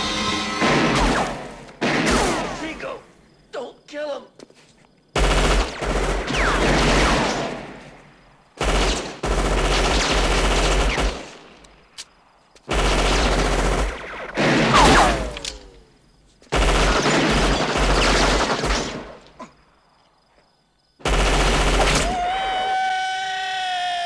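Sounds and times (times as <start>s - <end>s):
echoing gunshots: 0.5s - 2.8s, 5.2s - 11.6s, 12.7s - 15.8s, 16.5s - 19.2s, 21.0s - 22.2s
ricochet whine: 14.0s - 16.0s.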